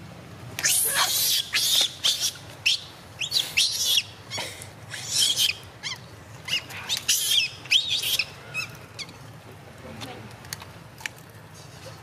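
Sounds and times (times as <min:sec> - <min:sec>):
young monkeys squealing: 0:00.6 - 0:09.1.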